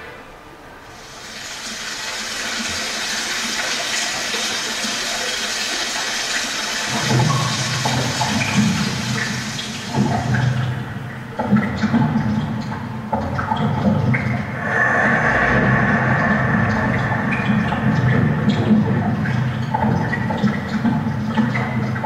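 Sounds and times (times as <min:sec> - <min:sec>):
low rumbling: 0:14.3 - 0:21.2.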